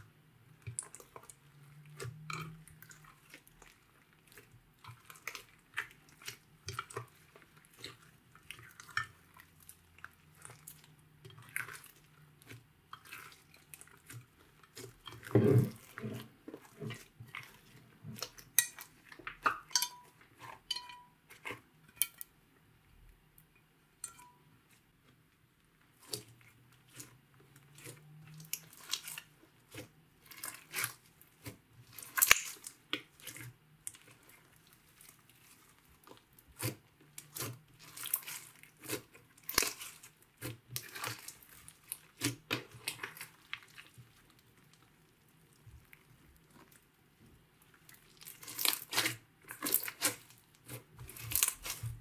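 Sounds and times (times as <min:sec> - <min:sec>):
slime squishing and popping: 0:27.8 - 0:44.0, 0:47.8 - 0:52.0.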